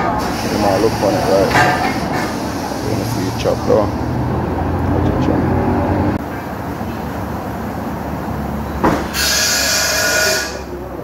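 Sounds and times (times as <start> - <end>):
vehicle engine rumbling: 0.0 - 11.0
loud hiss: 0.2 - 4.0, 9.0 - 10.7.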